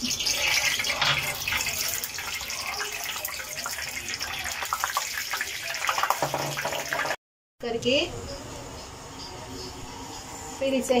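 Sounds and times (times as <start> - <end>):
oil crackling in pan: 0.0 - 7.2
oil pouring into frying pan: 0.1 - 7.2.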